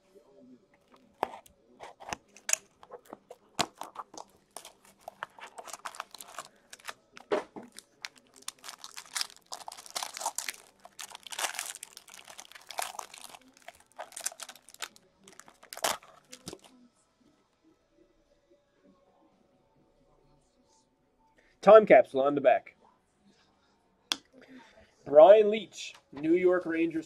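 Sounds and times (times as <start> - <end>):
foil pack crinkling and tearing: 0.9 - 16.7.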